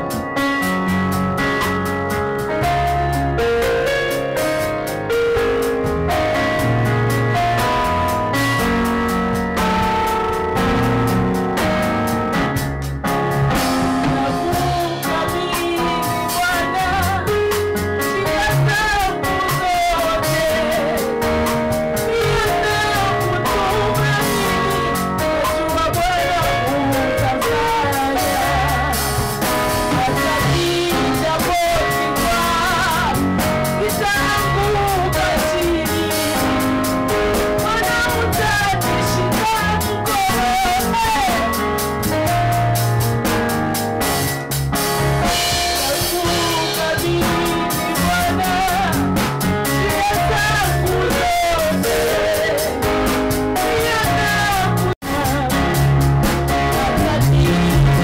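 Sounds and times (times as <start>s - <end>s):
drum kit: 0.0s - 58.0s
held keyboard chords: 0.0s - 58.0s
woman singing into a microphone: 13.8s - 41.7s, 45.6s - 58.0s.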